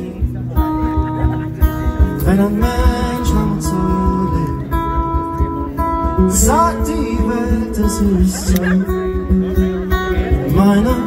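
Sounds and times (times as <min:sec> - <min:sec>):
strummed guitar: 0:00.0 - 0:11.0
steady low beat: 0:00.1 - 0:10.5.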